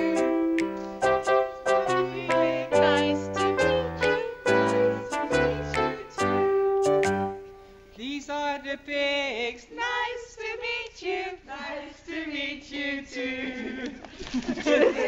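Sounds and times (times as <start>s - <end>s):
women singing children's song: 0.0s - 0.6s, 1.7s - 6.4s, 9.6s - 14.1s.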